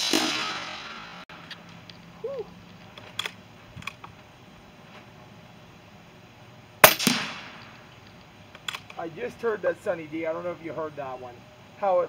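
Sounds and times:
air rifle shot: 0.0 - 1.2, 6.8 - 7.8.

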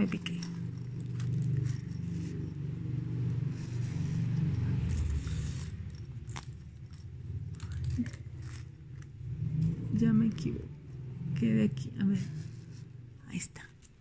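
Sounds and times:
sequin ribbon scraping and clicking: 0.0 - 10.7
low steady rumble: 0.0 - 14.0.

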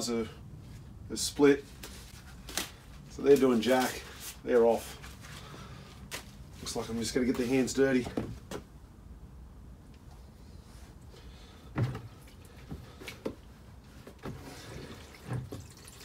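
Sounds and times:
faint liquid sloshing: 14.4 - 16.0.

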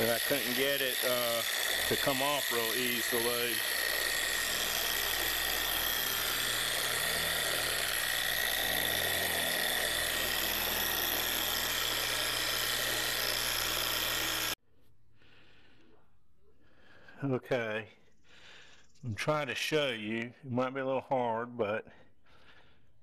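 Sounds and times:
orbital polisher running: 0.0 - 14.6.

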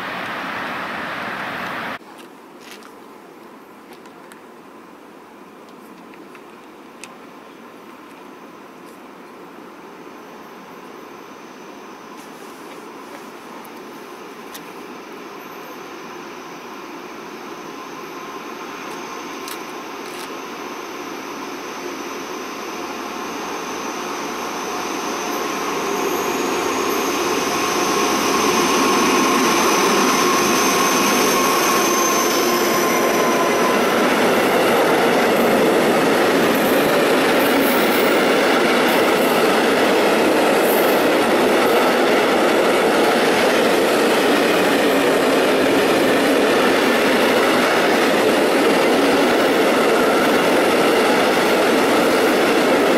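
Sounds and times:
diesel locomotive: 0.0 - 2.0, 5.1 - 52.9
thin high whine: 14.0 - 52.9
train wheels rumbling on rail: 21.8 - 52.9.

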